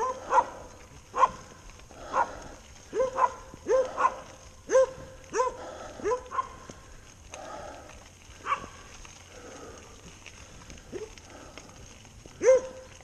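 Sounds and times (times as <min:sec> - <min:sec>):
dogs barking: 0:00.0 - 0:06.7, 0:08.4 - 0:08.8, 0:10.9 - 0:11.3, 0:12.3 - 0:13.0.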